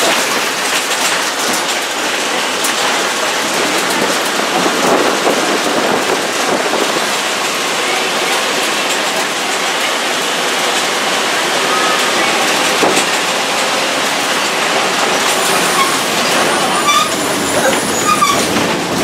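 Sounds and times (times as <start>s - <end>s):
road noise: 0.0s - 19.0s
wind through bus windows: 0.0s - 19.0s.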